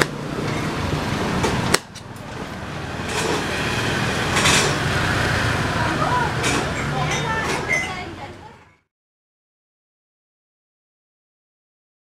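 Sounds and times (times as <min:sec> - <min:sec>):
street traffic: 0:00.0 - 0:08.9
vehicle passing: 0:00.2 - 0:08.5.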